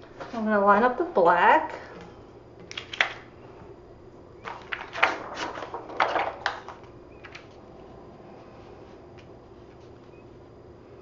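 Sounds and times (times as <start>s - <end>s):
plastic sheet rustling and crinkling: 4.4s - 7.6s.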